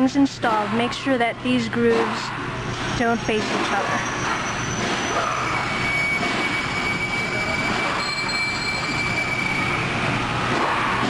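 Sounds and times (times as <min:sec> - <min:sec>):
machine drone: 0:00.0 - 0:11.0
high whine: 0:02.5 - 0:11.0.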